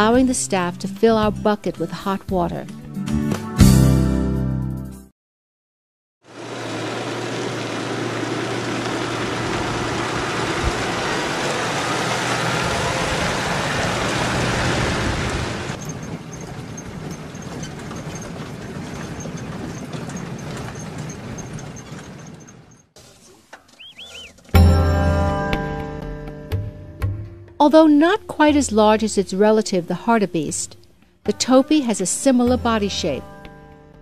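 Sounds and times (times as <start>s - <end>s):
vehicle engine running: 6.2s - 25.3s
road noise rushing: 6.3s - 24.6s
faint high chirps: 23.8s - 24.4s.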